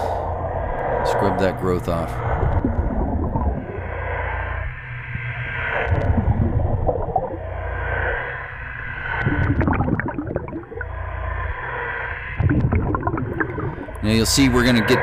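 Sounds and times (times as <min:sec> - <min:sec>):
underwater brush hum: 0:01.8 - 0:15.0
bubbling gurgle: 0:02.4 - 0:03.9, 0:05.9 - 0:07.5, 0:09.1 - 0:11.0, 0:12.3 - 0:15.0.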